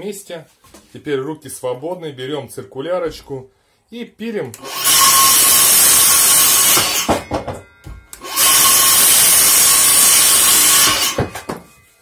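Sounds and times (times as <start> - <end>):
circular saw cutting wood: 4.6 - 7.2, 8.2 - 12.0
knocks: 6.8 - 8.1, 11.0 - 11.8.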